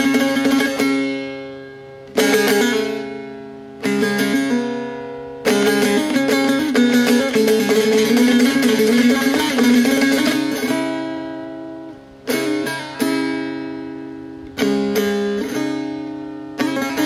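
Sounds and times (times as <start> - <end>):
dutar strumming and chords: 0.0 - 17.0.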